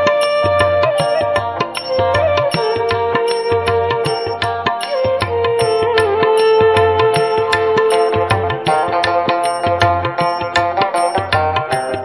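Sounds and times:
wavering melody line: 0:00.0 - 0:12.0.

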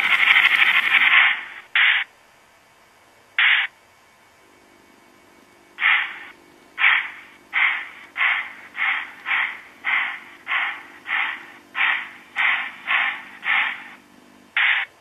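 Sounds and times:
steam locomotive chuffs from speaker: 0:00.0 - 0:02.0, 0:05.8 - 0:14.0.

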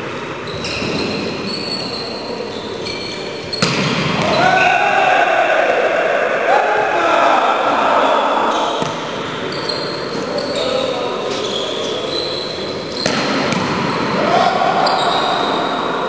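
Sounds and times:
players calling out: 0:00.4 - 0:16.0
volleyball being struck: 0:00.6 - 0:04.7, 0:13.0 - 0:13.9.

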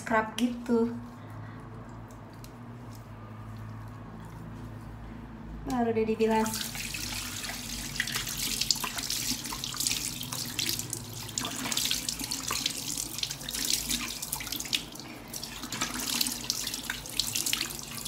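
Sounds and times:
tap water running into sink: 0:06.5 - 0:18.0.

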